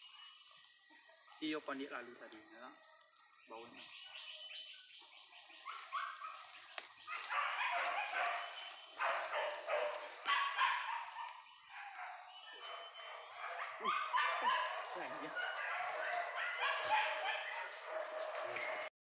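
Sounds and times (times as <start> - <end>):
dogs barking and yelping: 5.6 - 18.9.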